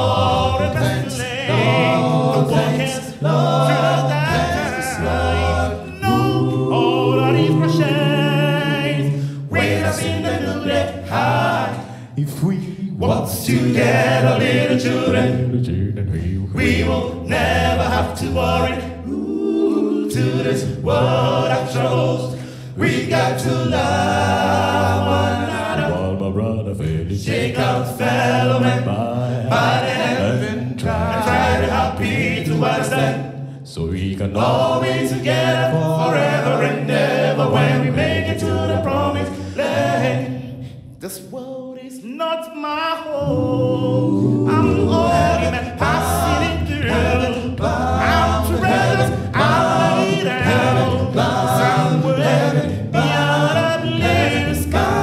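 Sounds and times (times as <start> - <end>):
male a cappella group singing: 0.0 - 55.0.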